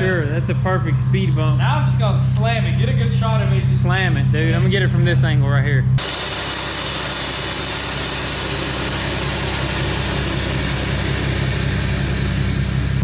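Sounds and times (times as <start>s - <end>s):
car engine idling: 0.0s - 13.0s
air suspension hissing: 6.0s - 13.0s.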